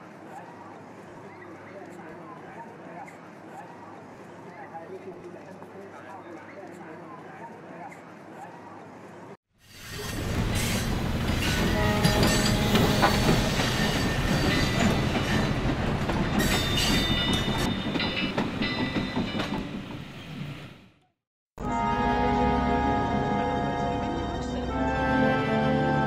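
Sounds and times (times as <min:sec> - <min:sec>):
train rumbling: 0:09.7 - 0:20.8.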